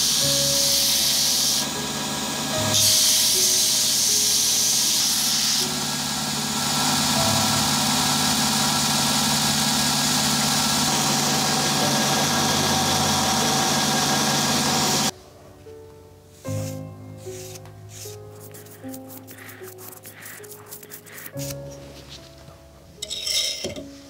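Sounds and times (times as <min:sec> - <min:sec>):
belt grinder sanding: 0:18.0 - 0:21.6.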